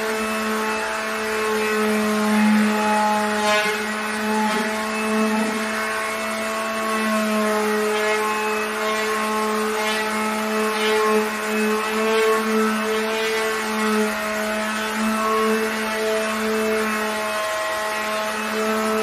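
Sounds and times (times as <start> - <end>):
orbital sander on plywood: 0.0 - 19.0.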